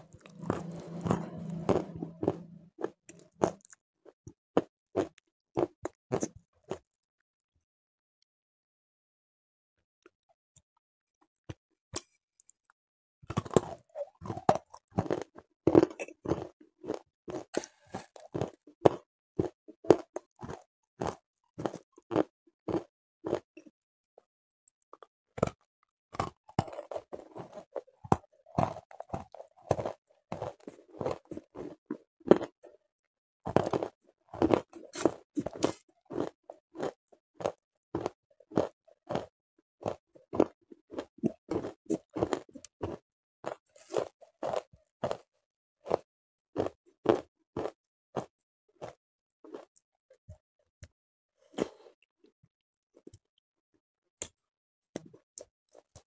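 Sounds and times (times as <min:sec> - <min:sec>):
crunchy chewing: 0:00.0 - 0:06.9, 0:13.3 - 0:23.7, 0:25.0 - 0:32.6, 0:33.5 - 0:45.2, 0:45.8 - 0:46.0, 0:46.6 - 0:49.8.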